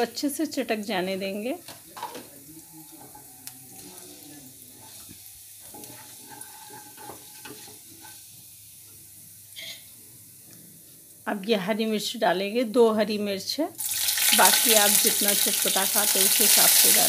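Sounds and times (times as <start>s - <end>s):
seeds sizzling in hot oil: 0.0s - 12.4s, 13.7s - 17.0s
spatula stirring: 2.3s - 8.3s.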